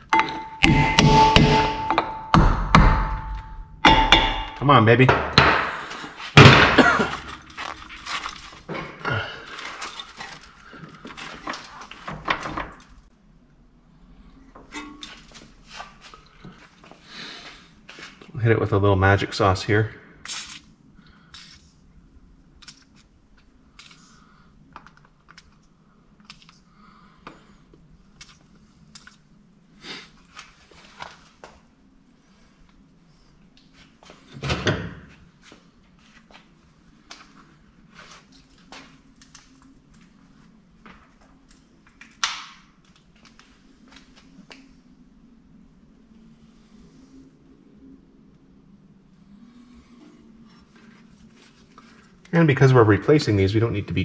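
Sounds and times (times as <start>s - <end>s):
low steady hum: 0.0s - 54.0s
metal clanking and scraping: 14.6s - 16.2s.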